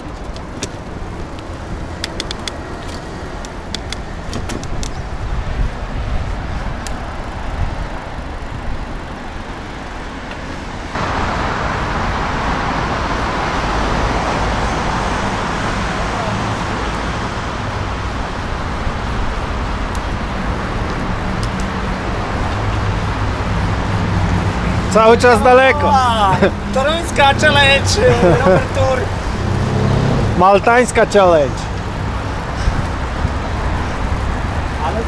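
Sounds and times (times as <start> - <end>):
cars passing: 0.0 - 35.0
sharp clicks: 0.1 - 5.0.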